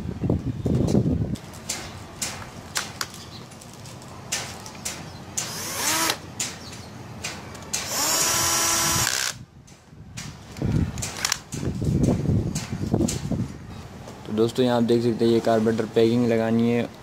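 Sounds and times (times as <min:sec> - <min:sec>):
cordless drill running bolts: 0:05.4 - 0:06.2, 0:07.8 - 0:09.4.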